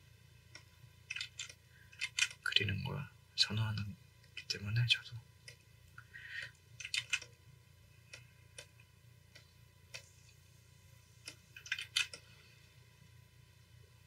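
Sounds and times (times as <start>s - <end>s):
faint steady hum: 0.0s - 14.0s
computer mouse clicks: 0.5s - 2.4s, 6.4s - 7.4s, 8.0s - 10.4s, 11.2s - 12.3s.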